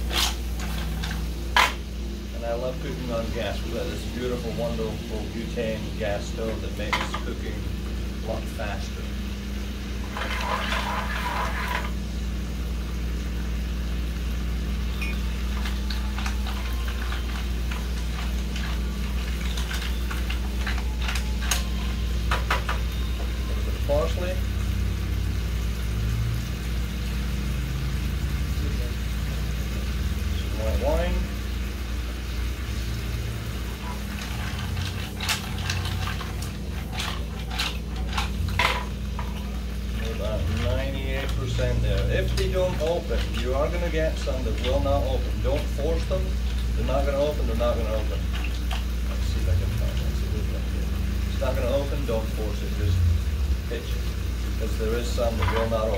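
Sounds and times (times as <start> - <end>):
spatula scraping shells in pan: 0.0 - 1.8, 10.0 - 12.0, 15.5 - 21.6, 33.4 - 40.7
mussels sizzling in a pan: 0.0 - 55.9
steady low hum: 0.0 - 55.9
low hum: 52.0 - 54.8.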